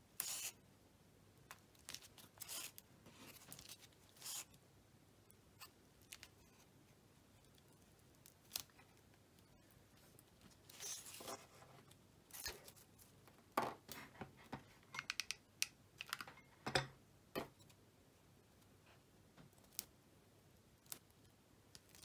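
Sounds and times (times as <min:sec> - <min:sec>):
rustling of hands with tape: 0:00.0 - 0:00.6, 0:01.4 - 0:04.6, 0:05.3 - 0:15.4.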